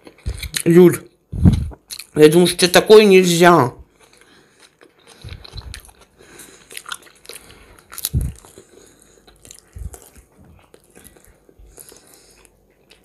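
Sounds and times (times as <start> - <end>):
chewing and biting: 3.9 - 13.0.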